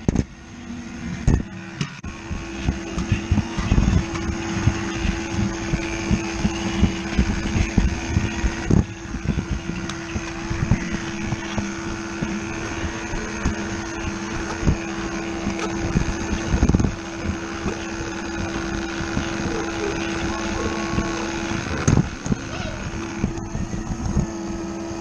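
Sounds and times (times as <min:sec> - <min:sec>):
toy train motor humming: 0:02.1 - 0:25.0.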